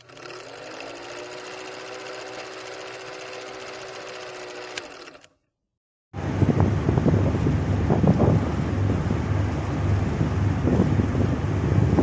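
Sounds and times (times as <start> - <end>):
film projector whirring and rattling: 0.0 - 5.4.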